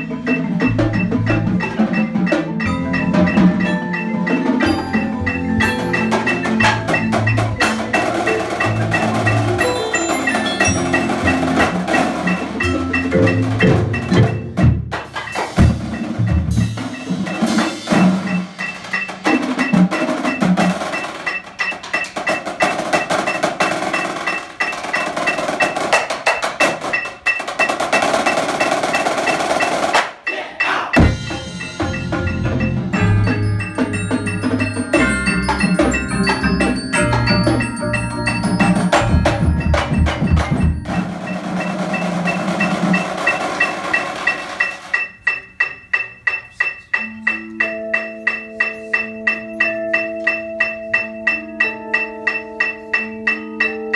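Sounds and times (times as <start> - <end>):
snare drums: 0.0 - 53.8
drum kit: 0.0 - 53.9
mallet keyboard instruments: 0.0 - 53.9
bass drums: 31.0 - 43.0.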